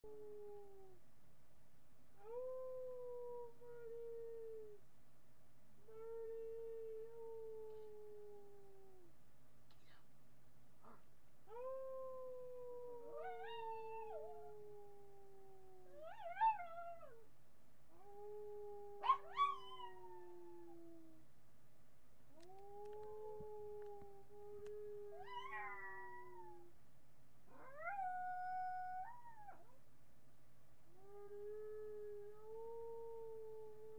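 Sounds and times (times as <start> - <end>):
dog howling: 11.5 - 17.2, 18.0 - 21.1, 22.4 - 26.7.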